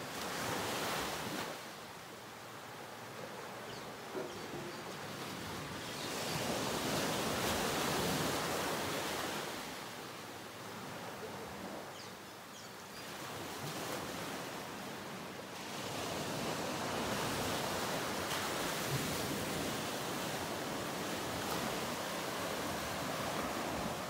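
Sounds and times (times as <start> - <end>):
breaking ocean waves: 4.1 - 11.8, 13.1 - 24.0.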